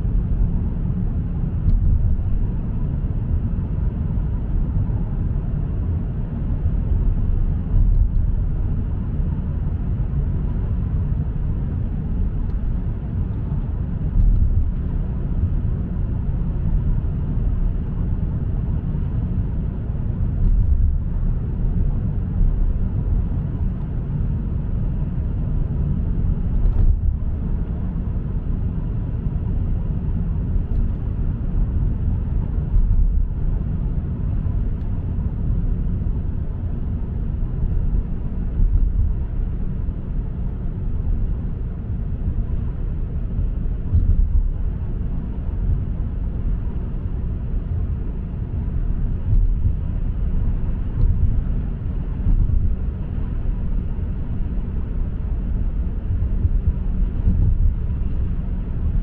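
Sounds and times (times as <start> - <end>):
car engine rumble: 0.0 - 59.0
tyre road noise: 0.0 - 59.0.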